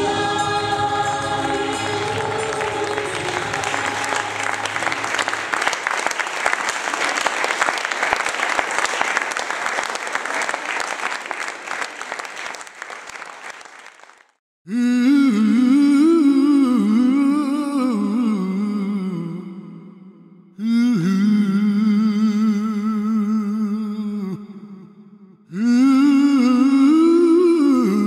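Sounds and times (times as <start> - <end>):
women's choir held chord: 0.0 - 5.6
audience applause: 1.0 - 14.4
solo voice humming: 14.7 - 19.6, 20.6 - 24.6.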